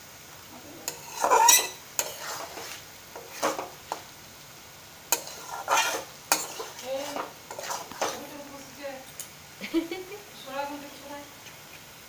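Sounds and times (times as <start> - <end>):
spatula scraping metal pan: 0.8 - 4.0, 5.1 - 8.4.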